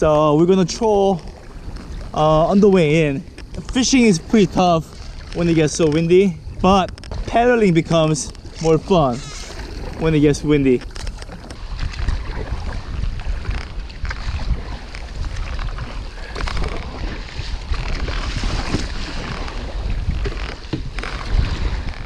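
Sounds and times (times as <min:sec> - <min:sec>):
choppy waves: 0:00.0 - 0:22.0
strong wind buffeting microphone: 0:00.0 - 0:22.0
paddle strokes splashing water: 0:00.6 - 0:22.0.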